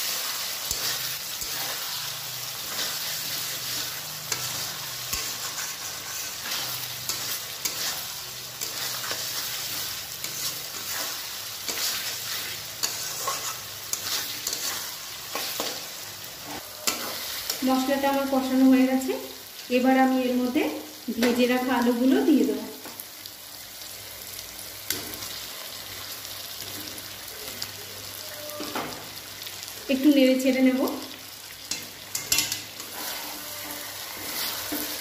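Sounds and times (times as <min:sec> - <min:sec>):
masala sizzling in hot oil: 0:00.0 - 0:35.0
metal spatula scraping pan: 0:00.6 - 0:02.0, 0:02.6 - 0:18.5, 0:31.7 - 0:35.0.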